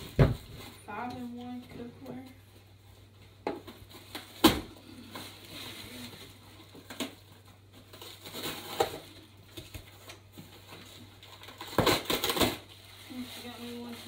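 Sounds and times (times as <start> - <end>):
wrapping paper rustling: 3.7 - 14.0.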